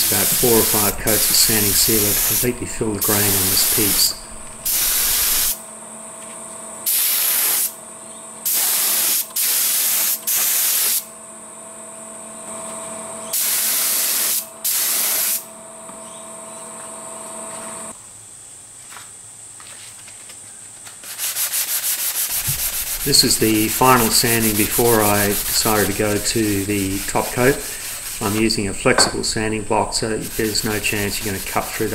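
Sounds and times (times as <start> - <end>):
spray gun hissing: 0.0 - 5.6, 6.9 - 7.8, 8.5 - 11.0, 13.3 - 15.4, 21.2 - 31.9
steady hum: 0.0 - 6.0, 22.2 - 31.9.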